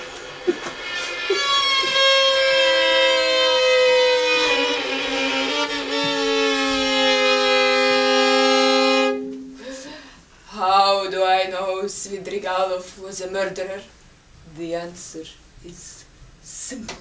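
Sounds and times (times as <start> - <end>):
slow bowed string music: 0.0 - 10.0.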